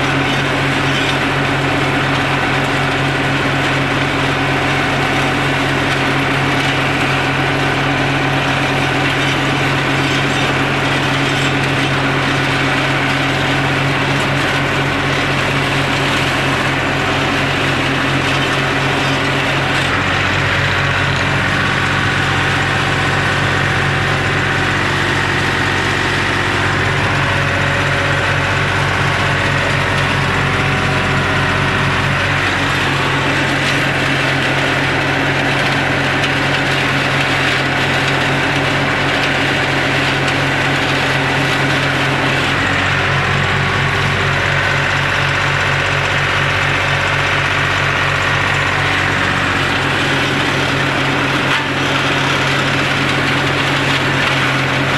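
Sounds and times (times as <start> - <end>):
tractor engine running: 0.0 - 54.9.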